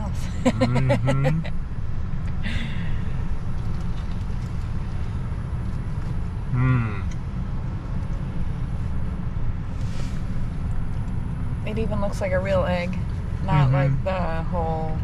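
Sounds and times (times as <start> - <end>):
low rumble in truck cab: 0.0 - 15.0
man humming: 0.5 - 1.5, 6.5 - 7.1.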